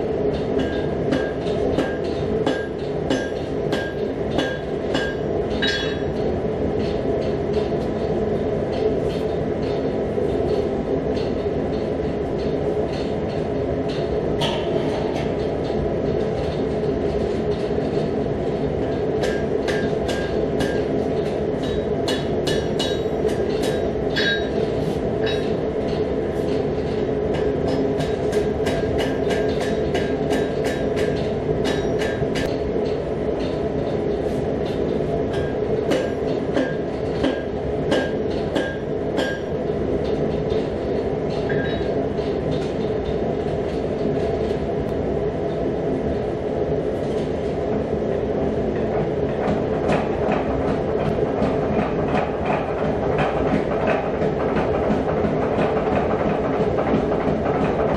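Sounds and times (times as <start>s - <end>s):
gas forge burner rushing: 0.0s - 57.9s
hammer striking metal on anvil: 0.6s - 6.1s, 19.2s - 20.9s, 21.6s - 24.6s, 35.3s - 39.6s.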